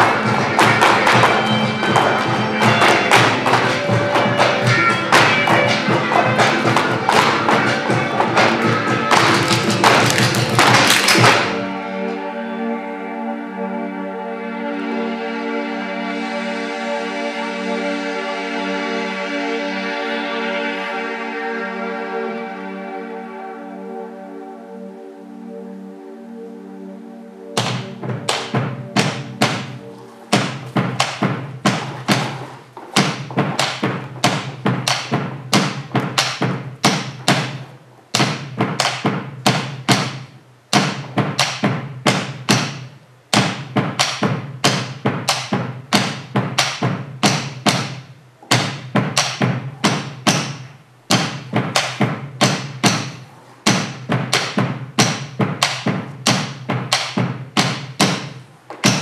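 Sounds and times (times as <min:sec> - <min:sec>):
drums beaten in fast rhythm: 0:00.0 - 0:11.6, 0:27.6 - 0:59.0.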